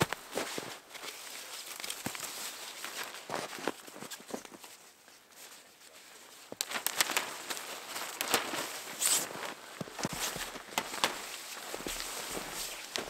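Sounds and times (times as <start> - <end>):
footsteps in snow: 0.0 - 4.8, 6.5 - 13.0
tarp fabric rustling and flapping: 6.3 - 13.0.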